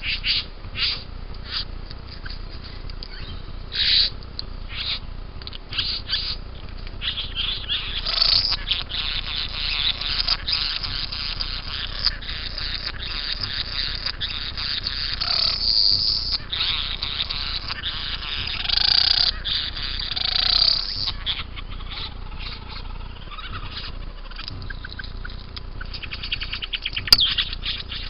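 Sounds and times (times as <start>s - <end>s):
bird buzzing rasping chatter: 0.0s - 28.0s
bird harsh calls: 0.0s - 28.0s.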